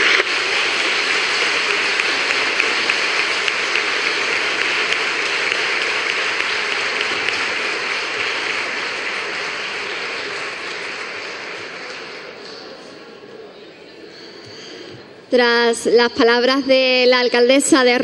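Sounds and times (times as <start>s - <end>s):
audience applause: 0.0s - 13.5s.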